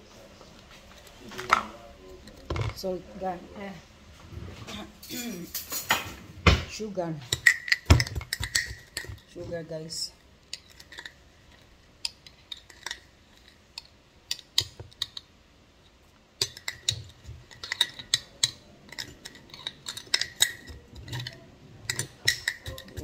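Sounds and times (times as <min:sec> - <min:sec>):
spoon scraping glass jar: 0:16.4 - 0:23.0.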